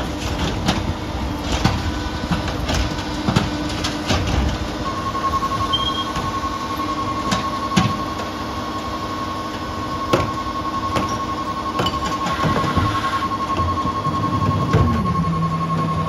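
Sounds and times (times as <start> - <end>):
garbage truck engine and hydraulics: 0.0 - 16.0
high beeping alarm: 4.8 - 16.0.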